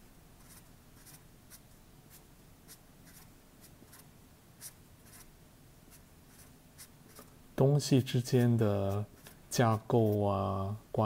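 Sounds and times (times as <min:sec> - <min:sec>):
marker scratching on paper: 0:00.4 - 0:05.3, 0:05.9 - 0:07.3.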